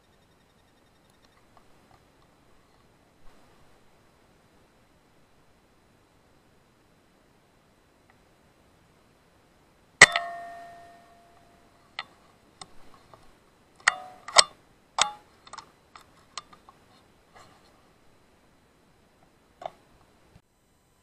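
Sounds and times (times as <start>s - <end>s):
metallic clicks and knocks: 13.8s - 16.6s.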